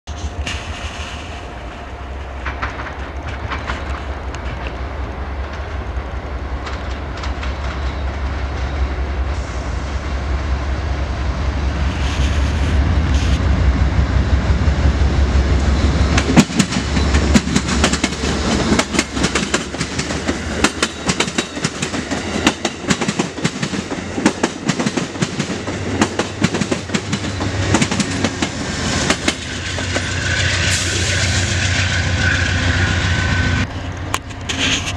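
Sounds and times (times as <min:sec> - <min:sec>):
diesel locomotive rumble: 0:00.1 - 0:34.9
train wheels clickety-clack: 0:02.2 - 0:04.8, 0:05.4 - 0:06.0, 0:06.6 - 0:08.8, 0:15.6 - 0:33.5.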